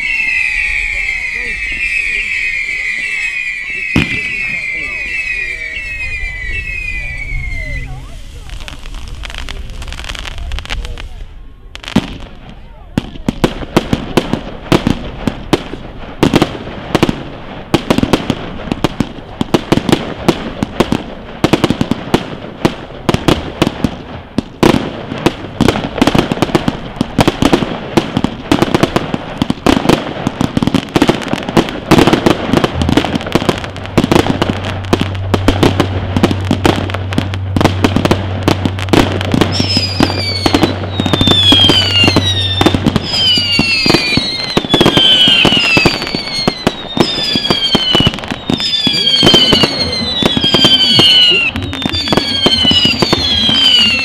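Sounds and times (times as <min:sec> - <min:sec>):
falling firework whistles: 0:00.0 - 0:12.8, 0:28.2 - 0:54.0
fireworks bangs and crackling: 0:00.0 - 0:54.0.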